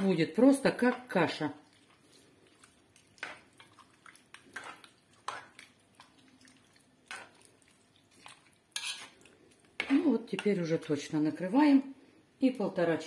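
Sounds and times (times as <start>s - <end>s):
spoon stirring stew in a pot: 0.0s - 11.2s
spoon scraping a pot: 3.2s - 5.7s, 8.2s - 10.6s.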